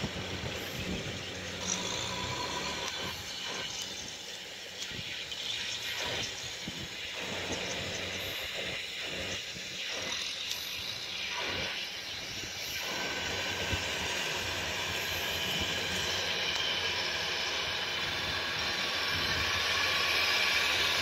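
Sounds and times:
rushing hiss: 0:00.0 - 0:21.0.

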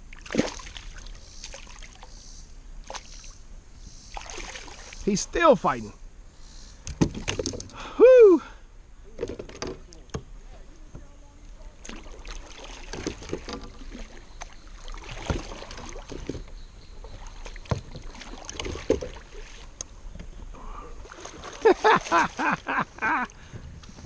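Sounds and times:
fish splashing in water: 0:00.2 - 0:02.1, 0:04.1 - 0:05.0, 0:11.8 - 0:16.4, 0:17.1 - 0:19.8, 0:21.0 - 0:22.6
paddle stroking water: 0:09.1 - 0:24.0.

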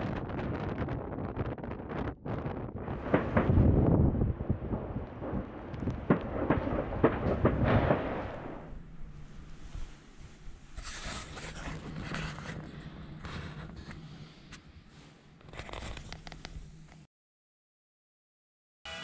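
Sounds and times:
fireworks banging: 0:01.6 - 0:08.9.

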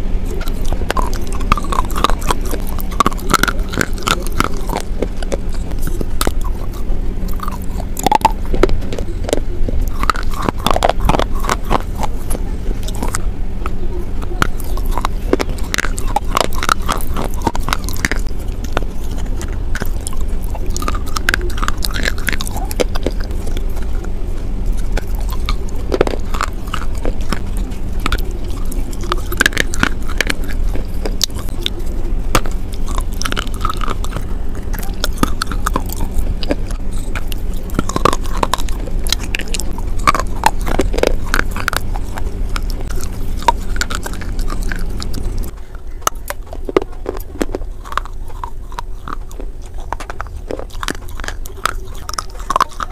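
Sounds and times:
sharp crunches and crackles: 0:00.0 - 0:52.9
wet sticky chewing: 0:00.0 - 0:52.9.

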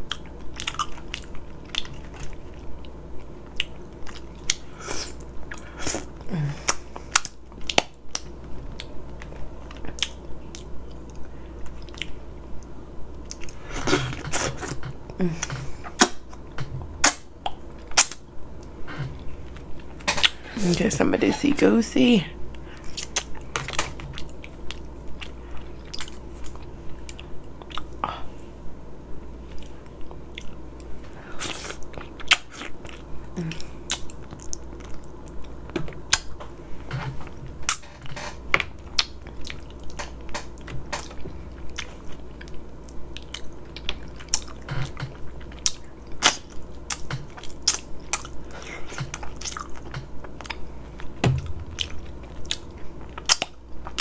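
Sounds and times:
person chewing: 0:00.0 - 0:20.5, 0:22.5 - 0:28.2, 0:29.4 - 0:54.0
low hum: 0:00.0 - 0:31.3, 0:48.1 - 0:54.0.

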